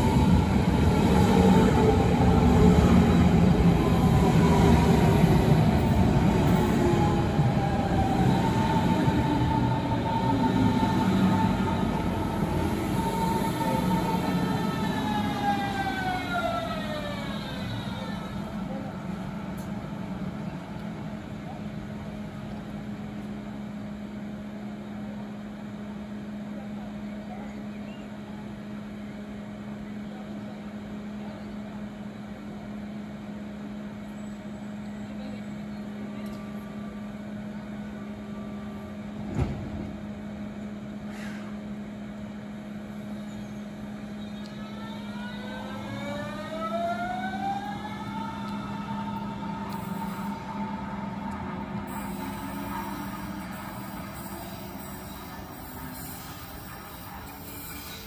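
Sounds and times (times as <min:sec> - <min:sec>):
electric train motors whining: 0:44.4 - 0:58.0.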